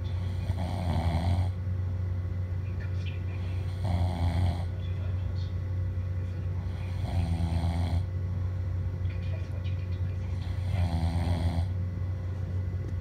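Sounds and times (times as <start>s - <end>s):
person snoring: 0.1s - 1.6s, 3.5s - 4.7s, 6.6s - 8.1s, 10.4s - 11.8s.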